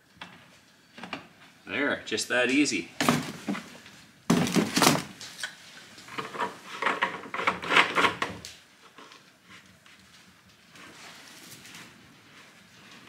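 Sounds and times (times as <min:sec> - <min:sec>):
plastic jug clatter: 0:03.0 - 0:05.2.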